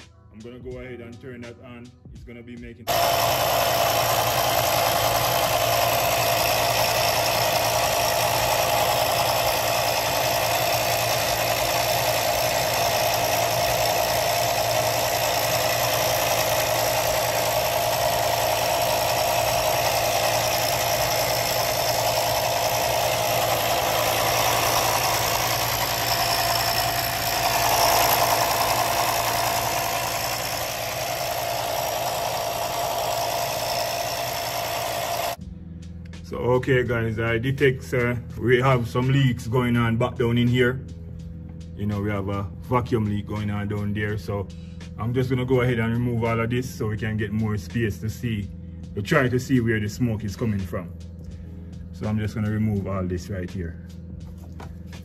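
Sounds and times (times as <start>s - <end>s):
smoke machine humming: 2.9s - 35.4s.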